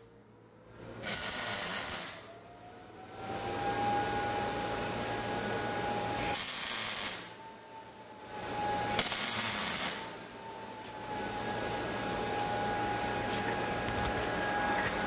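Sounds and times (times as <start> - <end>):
welding arc crackling: 1.0 - 2.3, 6.2 - 7.3, 8.9 - 10.1
steady high tone: 9.9 - 15.0.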